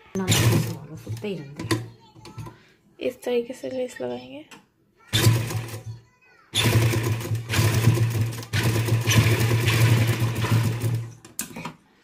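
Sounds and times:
sewing machine stitching: 0:00.2 - 0:01.8, 0:05.1 - 0:05.9, 0:06.6 - 0:11.2.

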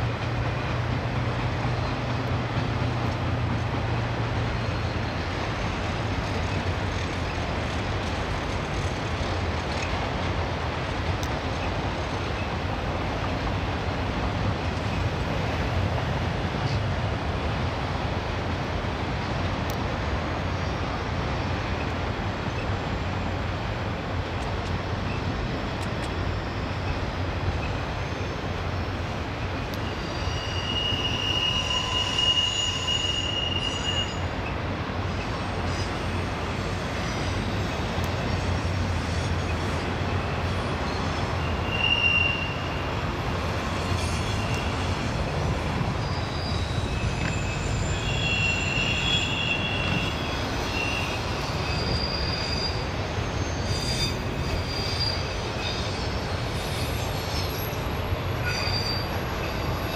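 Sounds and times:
train wheels rumbling on rail: 0:00.0 - 0:59.9
high-pitched wheel squeal: 0:29.8 - 0:34.4, 0:40.6 - 0:59.9.

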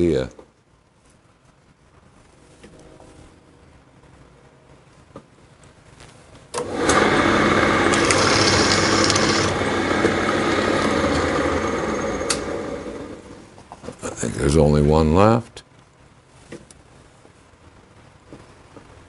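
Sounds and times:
drill press motor running: 0:06.6 - 0:13.4
drill bit drilling rivets: 0:07.6 - 0:12.5.

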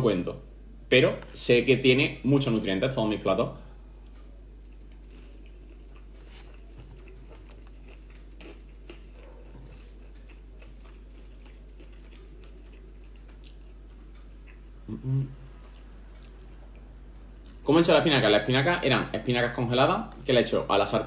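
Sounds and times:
man chewing: 0:04.0 - 0:17.6
short low voice sound: 0:14.9 - 0:15.4.

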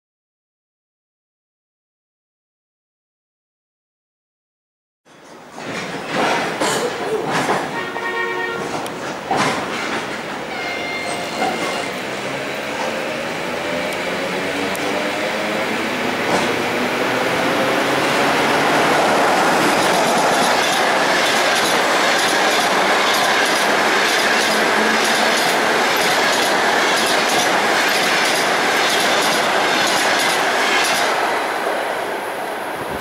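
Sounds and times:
train passing at speed: 0:05.1 - 0:33.0
wheels clicking over rails: 0:18.5 - 0:31.3.

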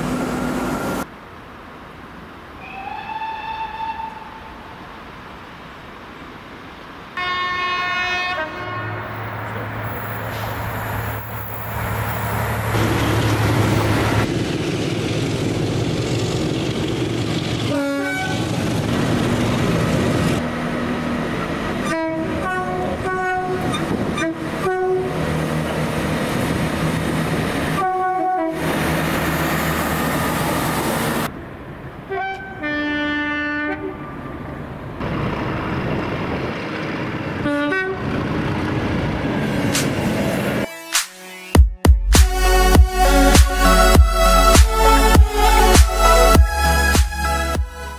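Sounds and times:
trains running past: 0:00.0 - 0:40.7
two-tone train horns: 0:02.6 - 0:04.8, 0:07.2 - 0:10.3, 0:17.6 - 0:18.6, 0:21.8 - 0:25.3, 0:27.7 - 0:28.8, 0:32.1 - 0:34.2, 0:37.4 - 0:38.2.

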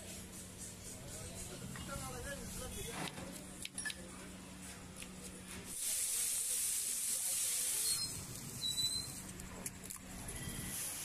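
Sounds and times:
vegetables sizzling on griddle: 0:05.7 - 0:08.8.

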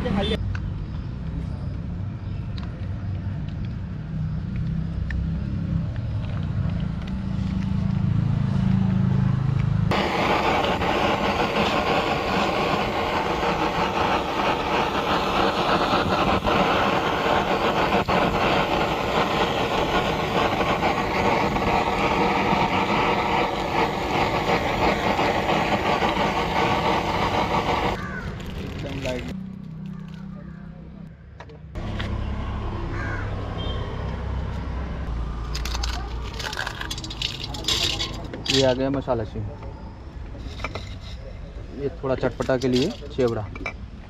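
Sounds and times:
blowtorch flame hissing: 0:09.9 - 0:29.4.

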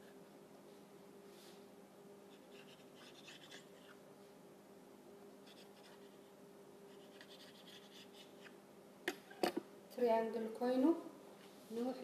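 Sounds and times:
steady hum: 0:00.0 - 0:12.0
knife scraping through dough: 0:02.4 - 0:04.0, 0:06.9 - 0:08.5.

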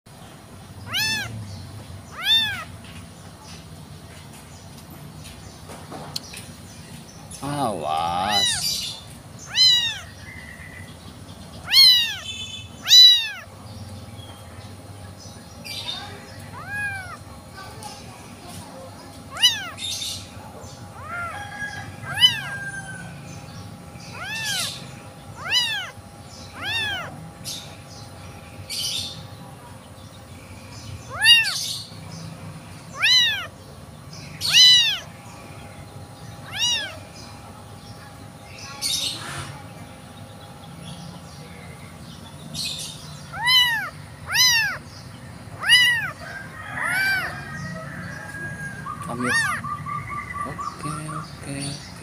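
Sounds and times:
kitten meowing: 0:00.9 - 0:01.4, 0:02.1 - 0:02.7, 0:08.1 - 0:08.8, 0:09.4 - 0:10.3, 0:11.6 - 0:13.5, 0:16.5 - 0:17.2, 0:19.3 - 0:19.8, 0:21.0 - 0:21.4, 0:22.0 - 0:22.6, 0:24.1 - 0:24.8, 0:25.4 - 0:27.2, 0:31.1 - 0:31.6, 0:33.0 - 0:33.5, 0:34.4 - 0:35.1, 0:36.4 - 0:37.0, 0:43.3 - 0:44.8, 0:45.6 - 0:46.2, 0:46.8 - 0:47.3, 0:49.2 - 0:49.6.

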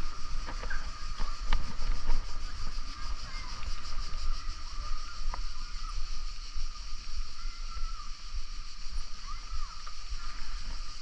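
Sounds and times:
high hiss and hum: 0:00.0 - 0:11.0
wind buffeting microphone: 0:00.0 - 0:11.0.

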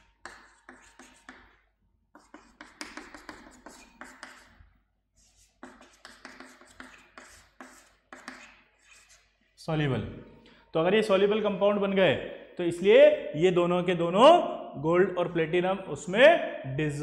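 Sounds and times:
chalk writing on chalkboard: 0:00.0 - 0:09.6.

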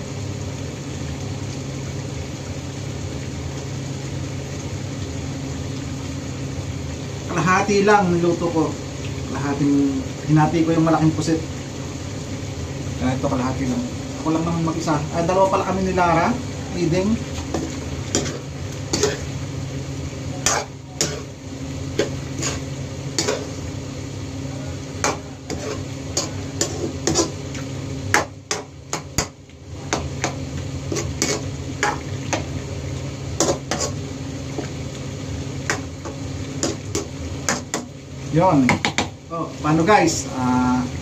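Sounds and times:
metal spoon scraping frying pan: 0:17.5 - 0:19.3, 0:20.4 - 0:21.4, 0:22.0 - 0:23.6, 0:25.0 - 0:27.4, 0:29.9 - 0:32.4, 0:33.4 - 0:34.0.

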